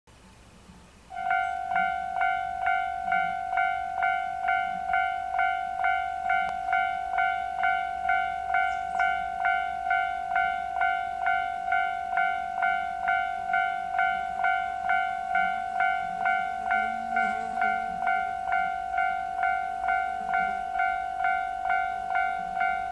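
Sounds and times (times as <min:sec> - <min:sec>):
level crossing warning bell: 0:01.1 - 0:22.9.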